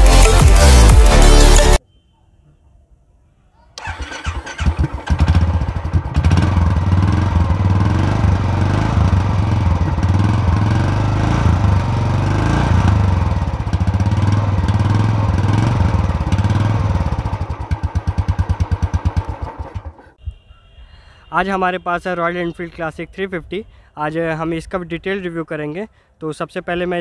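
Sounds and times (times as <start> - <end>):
motorcycle engine thumping: 12.8 - 20.0.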